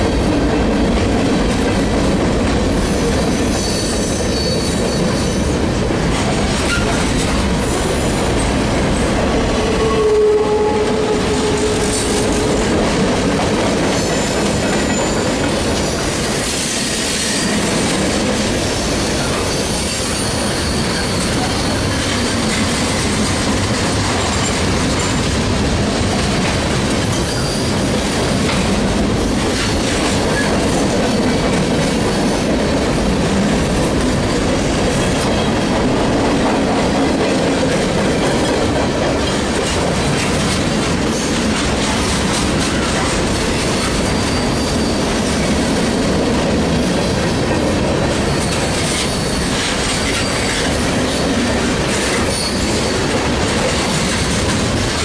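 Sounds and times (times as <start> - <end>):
train wheels rumbling on rails: 0.0 - 55.0
high wheel squeal: 2.9 - 5.5, 14.0 - 16.0, 18.7 - 23.0, 27.1 - 28.1, 43.8 - 45.4, 48.2 - 49.5, 52.2 - 53.0.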